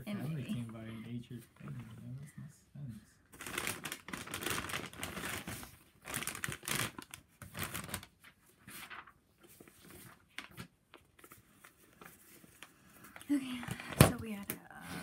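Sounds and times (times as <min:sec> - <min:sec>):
paper bag rustling: 0:03.4 - 0:12.7.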